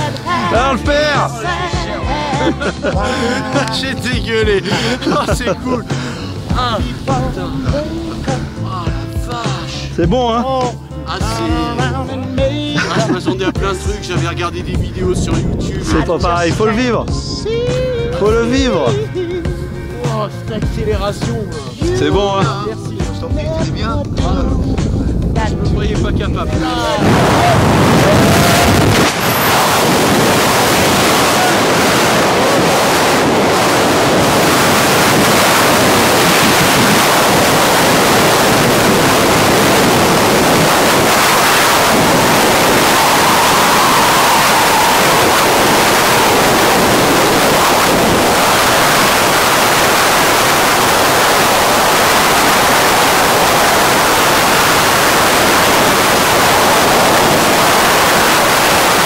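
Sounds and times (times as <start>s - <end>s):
wind rushing over microphone: 13.9s - 20.0s, 22.2s - 59.0s.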